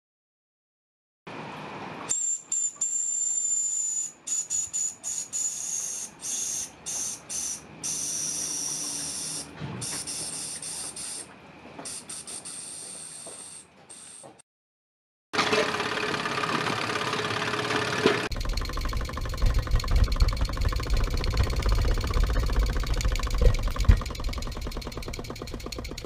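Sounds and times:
steam hissing in spurts: 5.1 - 11.3, 11.9 - 14.3.

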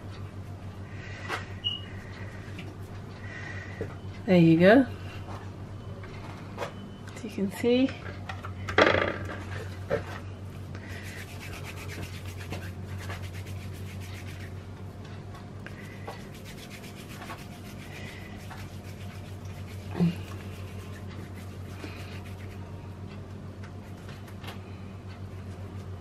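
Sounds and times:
hands rubbing dough: 10.8 - 14.6, 15.7 - 22.7.

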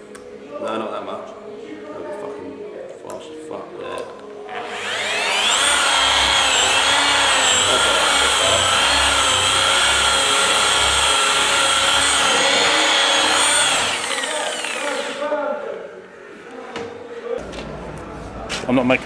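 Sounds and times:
electric polisher motor whine: 4.6 - 15.2.

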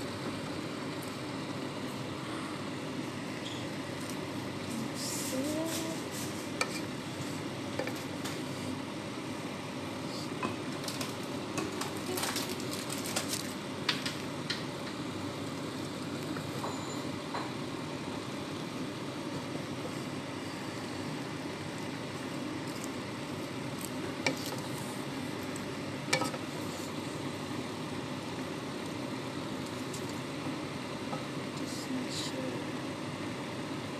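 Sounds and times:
vegetables sizzling in a pan: 0.0 - 33.9
spatula scraping a pan: 6.4 - 7.0.

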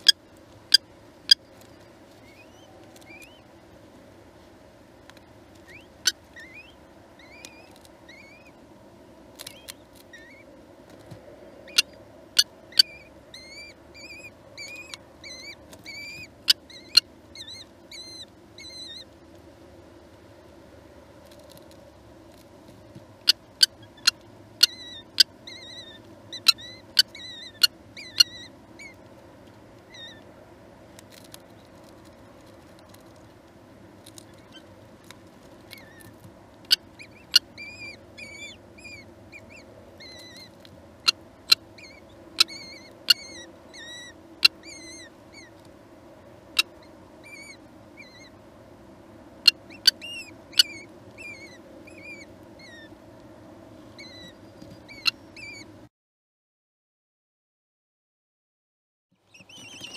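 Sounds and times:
chicks begging chirps: 0.0 - 3.6, 5.6 - 8.7, 11.6 - 19.1, 23.2 - 30.4, 35.6 - 45.7, 46.4 - 48.4, 49.4 - 53.0, 53.9 - 55.8, 59.3 - 59.9
steady low hum: 0.0 - 55.9.

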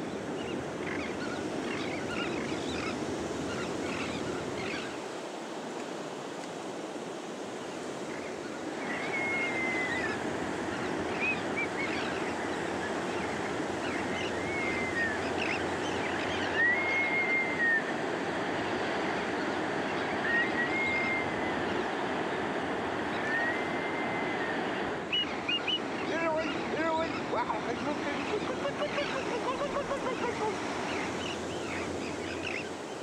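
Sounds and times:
ocean surf breaking: 0.0 - 33.0
high whistled call: 16.4 - 17.9, 20.2 - 21.5, 23.2 - 25.8.

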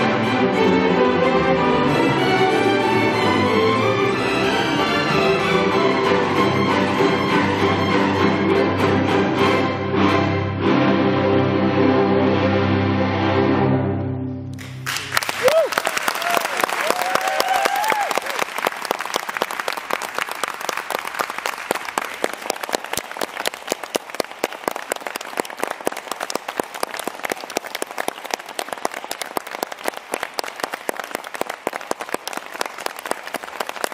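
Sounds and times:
audience applauding: 14.6 - 33.9
person cheering: 15.3 - 18.4.

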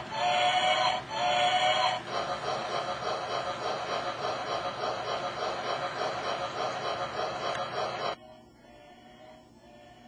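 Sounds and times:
model train whistle: 0.0 - 2.0
train rolling on track: 0.0 - 8.2.

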